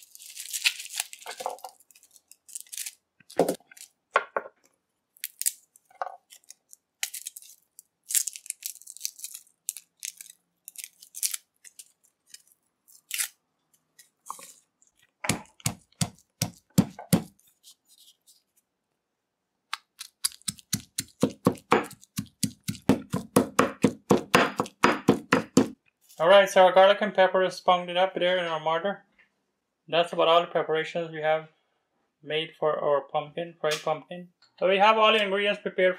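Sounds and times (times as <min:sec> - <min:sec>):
garlic skins crackling and tearing: 0:00.0 - 0:04.0, 0:05.1 - 0:13.4, 0:19.7 - 0:24.8
pestle pounding in stone mortar: 0:15.3 - 0:17.3, 0:20.4 - 0:25.8.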